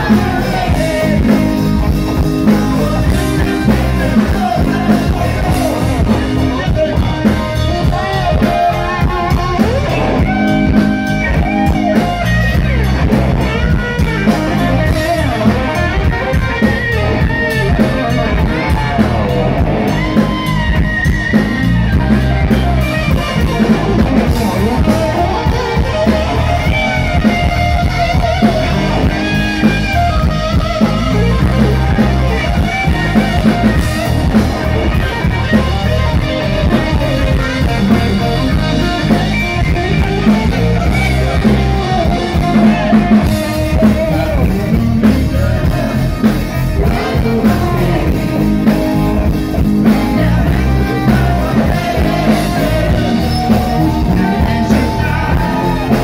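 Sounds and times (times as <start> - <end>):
electric guitar: 0.0 - 56.0
live rock band playing: 0.0 - 56.0.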